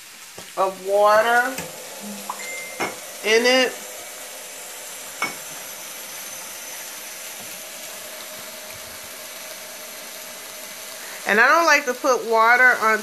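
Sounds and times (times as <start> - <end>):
vegetables sizzling in a pan: 0.0 - 13.0.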